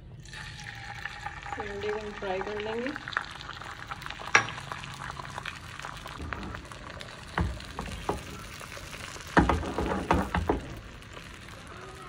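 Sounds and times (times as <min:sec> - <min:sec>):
egg sizzling in frying pan: 0:00.2 - 0:12.0
knock: 0:09.4 - 0:10.8.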